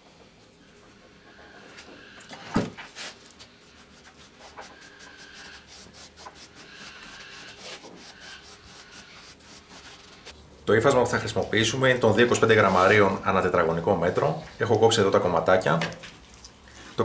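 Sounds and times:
cloth scrubbing fibreglass surface: 0:03.0 - 0:10.4.

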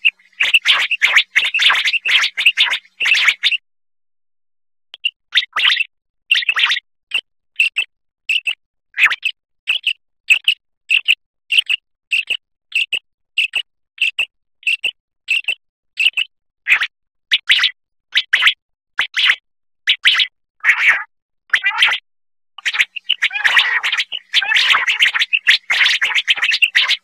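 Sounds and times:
quail calling: 0:00.0 - 0:03.6, 0:22.6 - 0:27.0.

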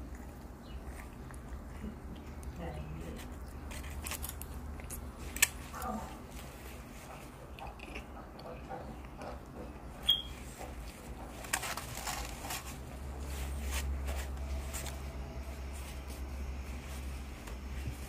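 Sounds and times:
low steady hum: 0:00.0 - 0:18.0
paper napkin rustling: 0:10.9 - 0:18.0.

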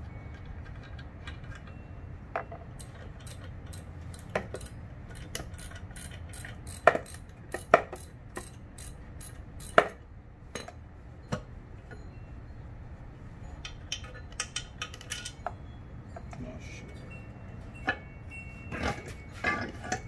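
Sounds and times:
hand tools clicking on metal: 0:02.8 - 0:10.0, 0:13.6 - 0:15.6.

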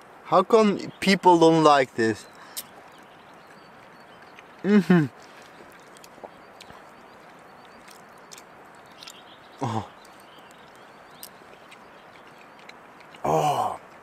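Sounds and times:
man humming with enjoyment: 0:13.2 - 0:13.8.

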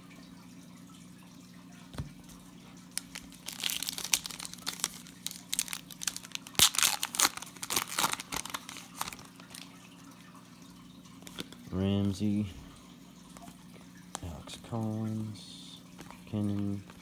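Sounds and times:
wrapper tearing and crinkling: 0:02.9 - 0:09.7.

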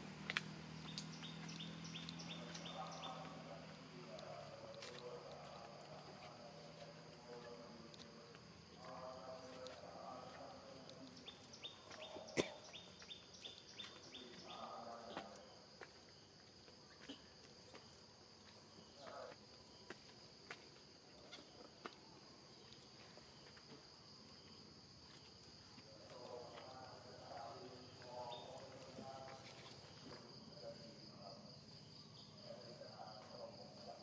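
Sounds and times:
high insect drone: 0:00.0 - 0:34.0
light ticks: 0:00.2 - 0:02.7.

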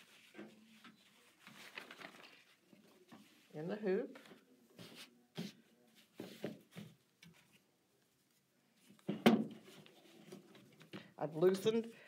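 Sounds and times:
fabric rustling: 0:00.0 - 0:09.0.

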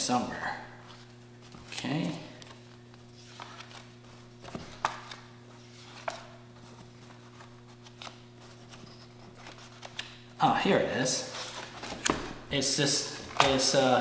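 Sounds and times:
steady low hum: 0:00.0 - 0:14.0
papers rustling and tapping: 0:00.9 - 0:10.3, 0:11.4 - 0:12.4, 0:13.2 - 0:13.8.

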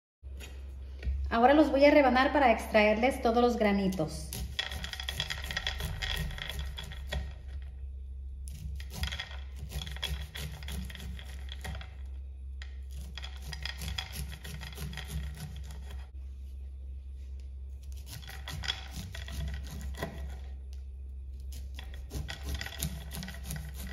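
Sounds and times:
knife scraping corn on cutting board: 0:08.5 - 0:11.9, 0:12.9 - 0:16.1, 0:17.8 - 0:20.6, 0:21.5 - 0:23.9.

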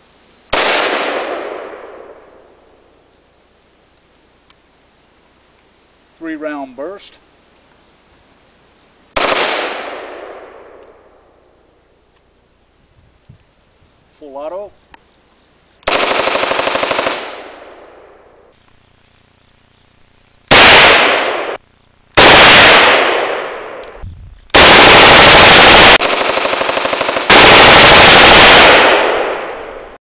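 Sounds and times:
rifle automatic fire: 0:00.5 - 0:02.2, 0:09.2 - 0:10.8, 0:15.9 - 0:18.2, 0:20.5 - 0:21.6, 0:22.2 - 0:23.8, 0:24.5 - 0:30.0
gunshot echo: 0:00.5 - 0:02.4, 0:09.2 - 0:11.0, 0:20.5 - 0:21.6, 0:22.2 - 0:26.0, 0:27.2 - 0:29.9.

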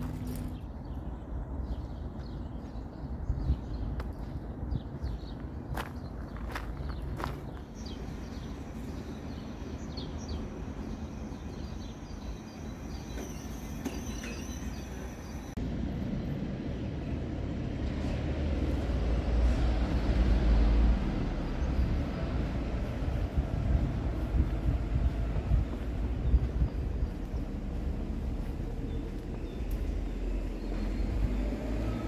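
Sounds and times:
small birds chirping: 0:00.0 - 0:15.6, 0:21.5 - 0:31.8
vehicle passing: 0:15.6 - 0:32.0.

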